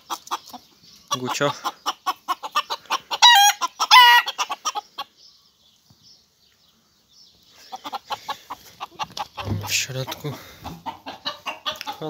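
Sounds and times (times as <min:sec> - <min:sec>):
rooster clucking: 0:00.0 - 0:05.2, 0:07.6 - 0:12.0.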